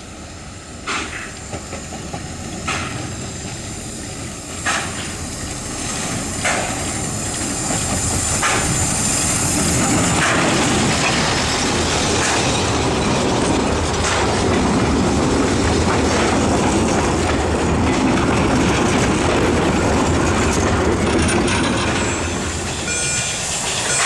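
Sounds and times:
steam locomotive passing: 0:00.0 - 0:24.0
wheels clattering on rails: 0:00.8 - 0:03.7, 0:04.6 - 0:24.0.

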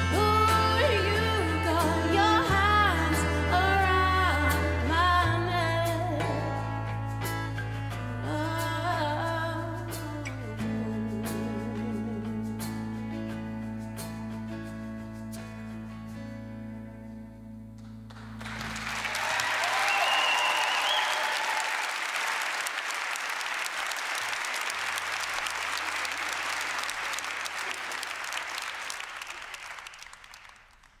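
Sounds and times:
audience applauding: 0:18.1 - 0:31.0
voices cheering: 0:18.8 - 0:24.9
whistle: 0:19.7 - 0:21.5.

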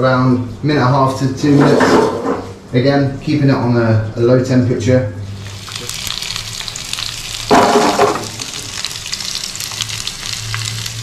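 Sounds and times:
chicken sizzling in frying pan: 0:05.4 - 0:11.0.

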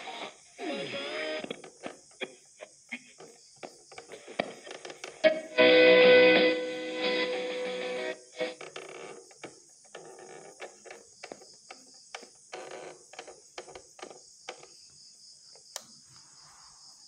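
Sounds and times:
radio crackling between stations: 0:00.0 - 0:03.2, 0:04.0 - 0:09.2
crickets chirping: 0:00.0 - 0:17.0.

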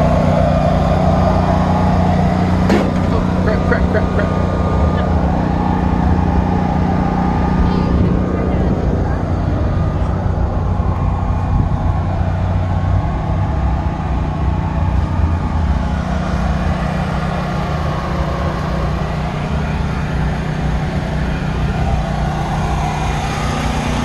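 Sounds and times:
motor humming: 0:00.0 - 0:24.0.

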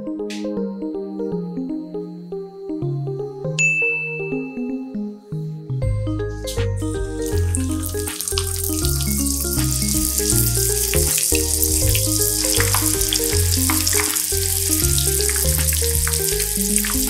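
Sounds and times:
background music with bass line: 0:04.4 - 0:17.0
chicken deep-frying in hot oil: 0:07.2 - 0:17.0
crackling pops of oil: 0:08.0 - 0:10.1, 0:11.9 - 0:17.0.

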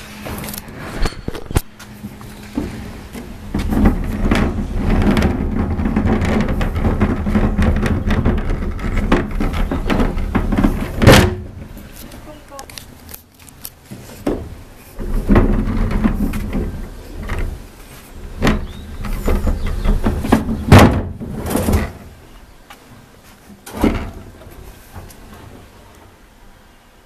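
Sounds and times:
wheelie bin wheels rolling on paving: 0:00.0 - 0:27.0
plastic bin knocks and thumps: 0:02.6 - 0:11.7, 0:18.3 - 0:22.1.

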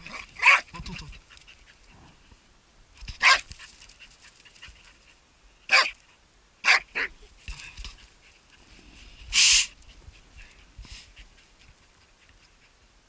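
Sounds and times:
dog barking: 0:00.4 - 0:00.7, 0:03.2 - 0:03.4, 0:05.7 - 0:06.0, 0:06.6 - 0:07.1.

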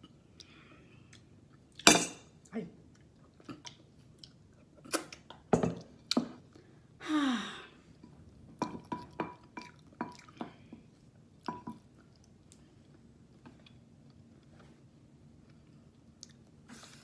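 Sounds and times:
person chewing with mouth smacks: 0:09.6 - 0:14.5, 0:15.4 - 0:17.0.

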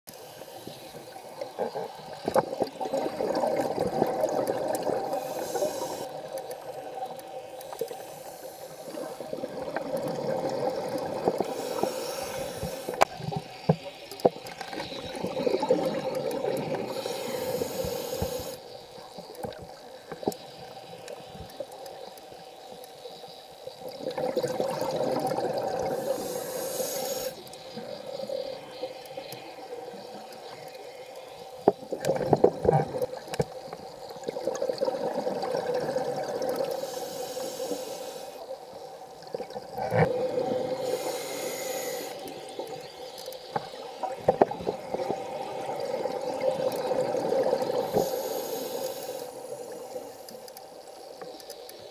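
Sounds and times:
regulator inhale hiss: 0:00.1 - 0:02.8, 0:04.8 - 0:10.0, 0:11.0 - 0:13.1, 0:16.8 - 0:19.3, 0:25.8 - 0:31.7, 0:36.4 - 0:38.6, 0:40.2 - 0:44.2, 0:47.4 - 0:51.8
exhaled bubbles gurgling underwater: 0:00.4 - 0:22.2, 0:23.1 - 0:51.9.

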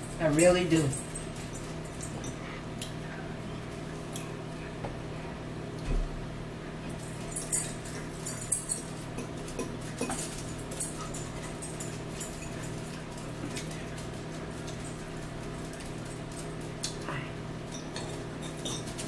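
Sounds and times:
steady low hum: 0:00.0 - 0:19.0
forks clicking against plates: 0:07.0 - 0:19.0.

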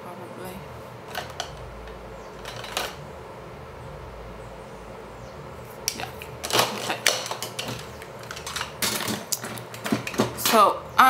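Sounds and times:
clicks of pencils being handled: 0:06.4 - 0:10.6.

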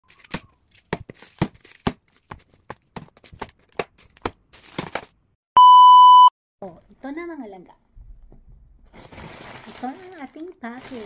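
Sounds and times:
loud electronic beep: 0:05.6 - 0:06.3.

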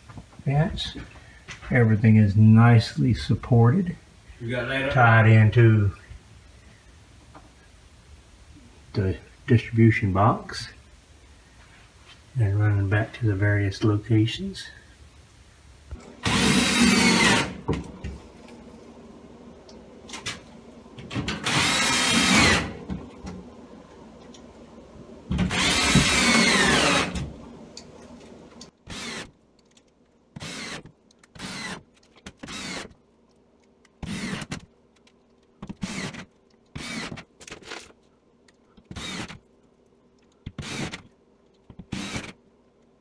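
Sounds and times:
cordless drill driving screws: 0:16.2 - 0:17.6, 0:21.4 - 0:22.8, 0:25.4 - 0:27.3, 0:28.9 - 0:29.3, 0:30.4 - 0:33.0, 0:34.0 - 0:34.6, 0:35.7 - 0:37.3, 0:38.9 - 0:39.4, 0:40.5 - 0:41.0, 0:41.8 - 0:42.4.

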